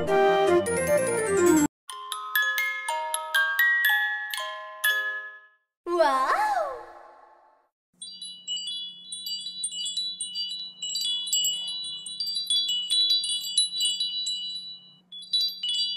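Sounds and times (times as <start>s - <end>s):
chimes tinkling: 8.0s - 15.9s.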